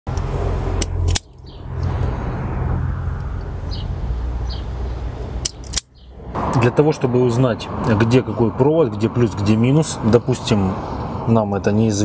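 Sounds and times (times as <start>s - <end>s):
sharp clicks: 5.2s - 5.9s.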